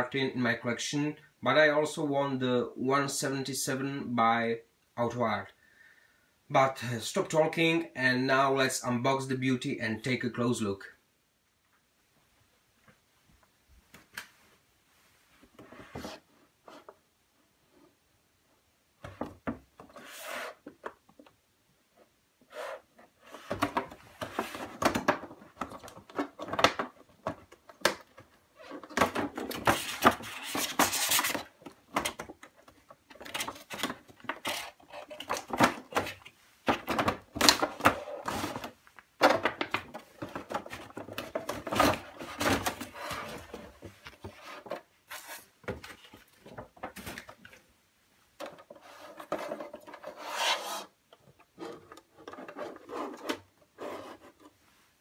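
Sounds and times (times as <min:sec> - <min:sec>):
cardboard scraping against plastic: 0:19.8 - 0:20.8, 0:22.5 - 0:28.0, 0:28.6 - 0:47.4, 0:48.6 - 0:54.5.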